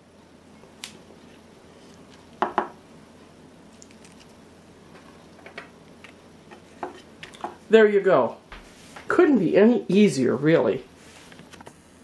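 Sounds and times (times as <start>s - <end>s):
dishes knocking on wooden table: 2.4s - 2.8s, 6.5s - 7.6s.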